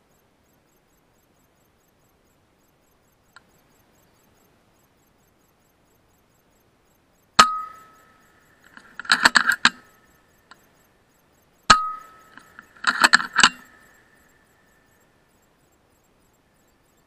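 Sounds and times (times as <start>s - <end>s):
metallic clicks of cocking lever: 8.6s - 9.9s, 11.7s - 14.0s.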